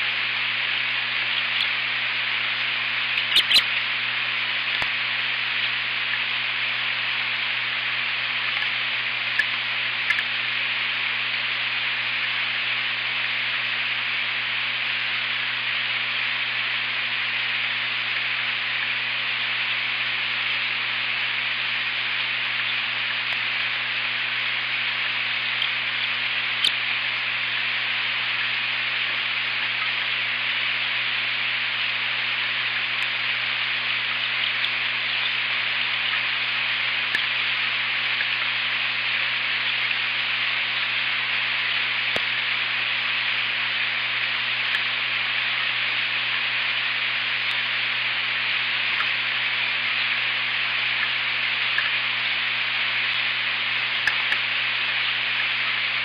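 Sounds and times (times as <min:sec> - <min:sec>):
low steady hum: 0:00.0 - 0:56.0
sharp drop ticks: 0:03.1 - 0:03.6, 0:10.1 - 0:10.3.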